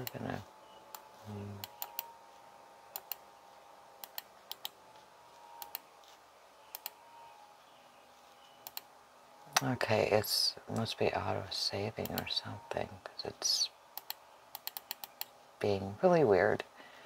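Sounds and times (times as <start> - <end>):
faint steady whine: 0.0 - 17.0
computer control clicks: 0.9 - 2.2, 2.9 - 3.2, 4.0 - 4.8, 5.6 - 5.9, 6.7 - 7.0, 8.6 - 8.9, 14.0 - 15.3.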